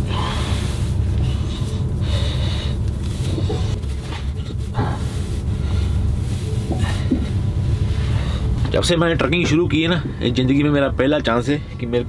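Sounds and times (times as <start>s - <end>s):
low engine rumble: 0.0s - 12.0s
clothing rustling: 0.5s - 8.3s.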